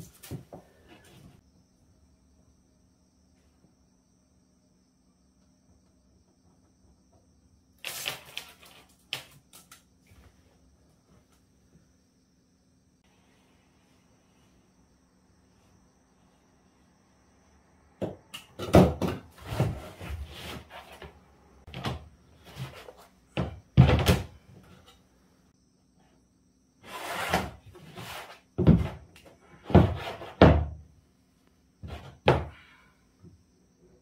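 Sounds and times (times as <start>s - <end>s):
knocks and thuds on plywood floor: 18.0s - 20.0s, 21.7s - 24.4s, 28.6s - 30.9s, 31.8s - 32.6s.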